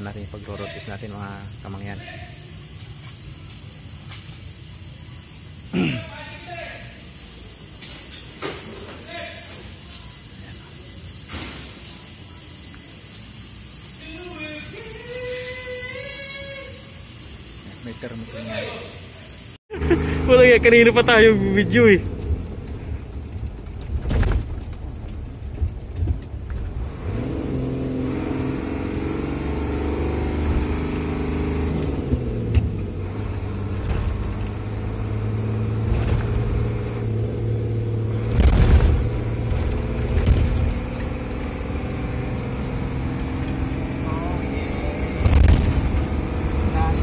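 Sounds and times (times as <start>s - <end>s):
diesel truck engine under load: 19.7s - 47.0s.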